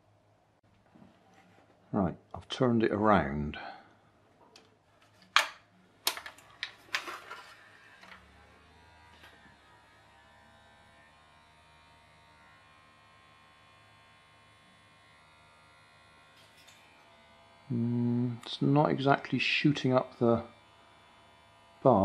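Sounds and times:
electric toothbrush buzzing: 6.8 - 22.0.

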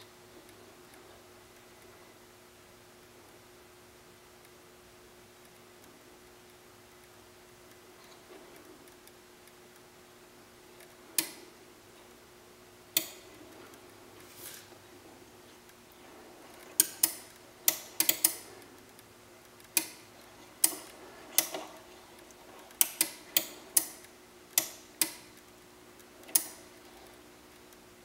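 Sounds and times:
faint steady hum: 0.0 - 28.0
sharp mechanical clicks: 16.6 - 27.8.

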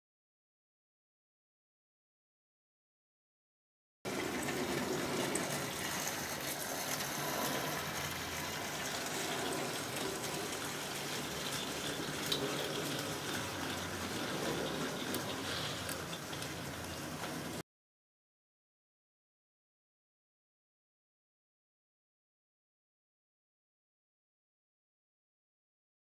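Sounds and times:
model train wheels rushing on rails: 4.1 - 17.6.

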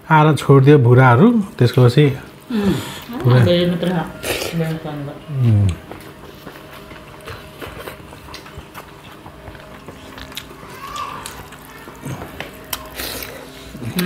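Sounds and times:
chewing: 1.6 - 14.0
fingers mixing food on metal plates: 3.0 - 14.0.

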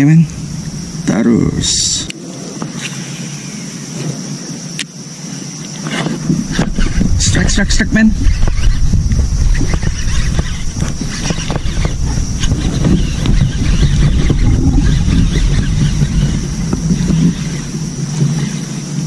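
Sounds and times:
faint high whine: 0.0 - 19.0
wind rumbling on microphone: 0.0 - 19.0
microphone handling noise: 5.7 - 19.0.

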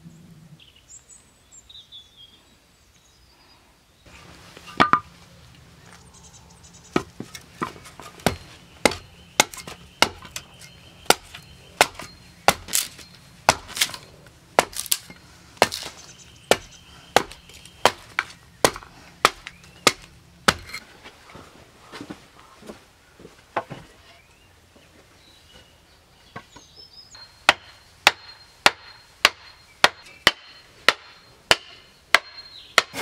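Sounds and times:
hand tool striking: 7.0 - 20.8.

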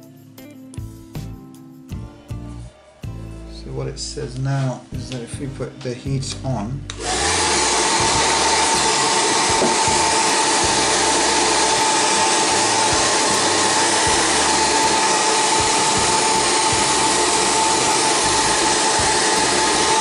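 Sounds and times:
hot-air blower whine: 6.9 - 20.0.

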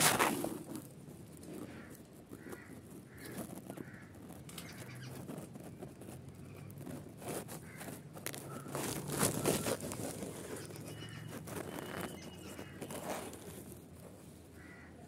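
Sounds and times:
rustling of leaves and twigs: 0.0 - 15.0
nestlings begging calls: 10.4 - 13.0.

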